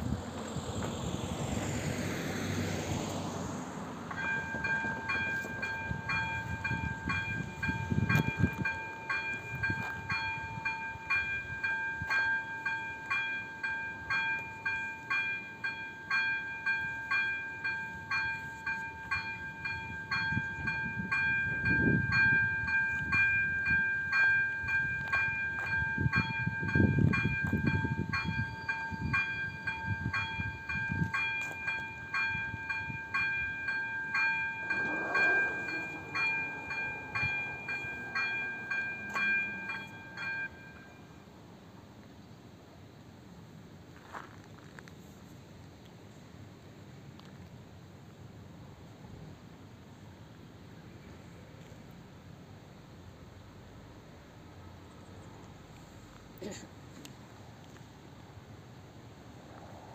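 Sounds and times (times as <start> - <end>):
road vehicle passing: 0.0 - 10.5, 29.7 - 41.2, 53.4 - 59.9
level crossing warning bell: 4.1 - 41.4
low rumbles: 33.0 - 40.8.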